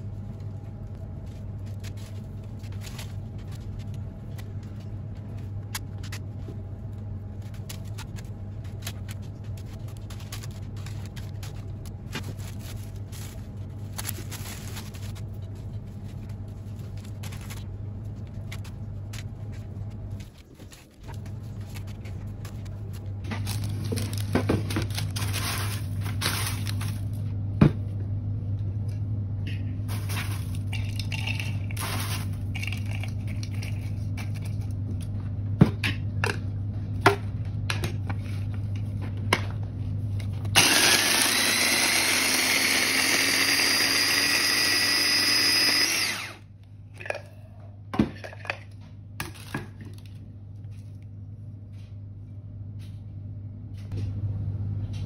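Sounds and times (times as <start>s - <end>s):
dry bread crackling: 6.9s - 27.3s
food processor motor whining: 40.5s - 46.4s.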